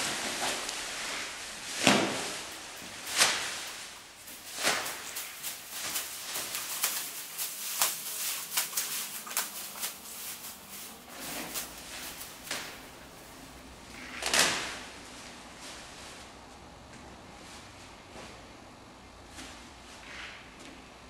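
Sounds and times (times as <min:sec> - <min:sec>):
plastic bags crinkling: 0:00.6 - 0:14.3.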